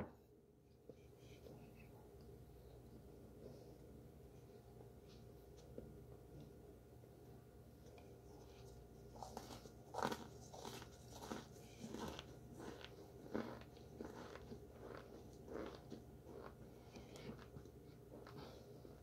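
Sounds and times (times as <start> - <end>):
biting and chewing crunchy food: 7.9 - 19.0.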